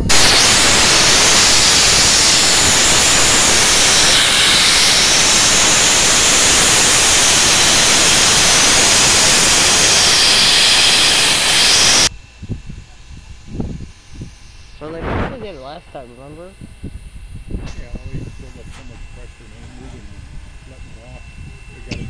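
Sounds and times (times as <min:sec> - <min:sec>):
steam hissing from safety valve: 0:00.0 - 0:12.1.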